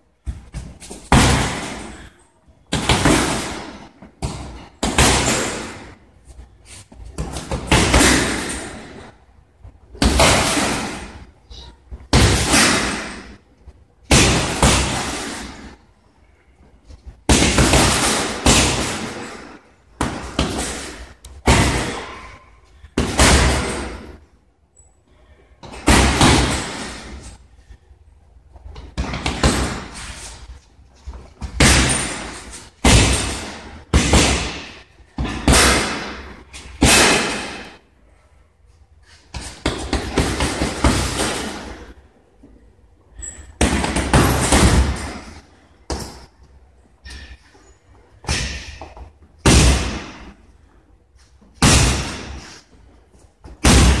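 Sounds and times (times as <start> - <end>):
punches smacking heavy bag: 0.6 - 2.0, 2.7 - 6.0, 7.1 - 9.0, 10.0 - 11.2, 12.1 - 13.3, 14.1 - 15.7, 17.3 - 22.3, 23.0 - 24.1, 25.6 - 27.2, 28.8 - 30.2, 31.4 - 37.7, 39.3 - 41.9, 43.6 - 46.2, 48.2 - 50.4, 51.6 - 52.4, 53.5 - 54.0.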